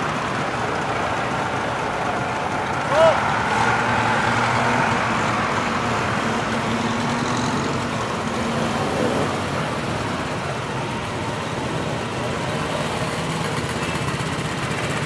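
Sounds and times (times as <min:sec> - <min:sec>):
motorcycle engines at low speed: 0:00.0 - 0:15.0
car engine passing: 0:02.2 - 0:10.4.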